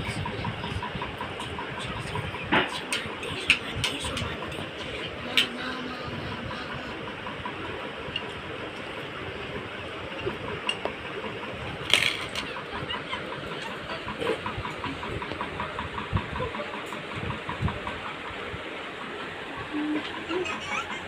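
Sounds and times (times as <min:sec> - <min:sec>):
plates and forks clinking: 0:11.8 - 0:12.5.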